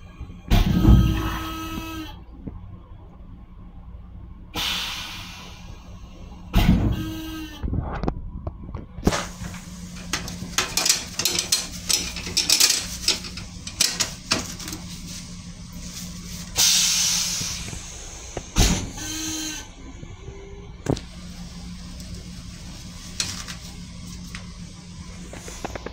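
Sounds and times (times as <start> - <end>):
low hum: 0.0 - 25.9
loud hiss: 4.6 - 6.0, 13.8 - 19.6
clicks and rattles: 9.4 - 14.9.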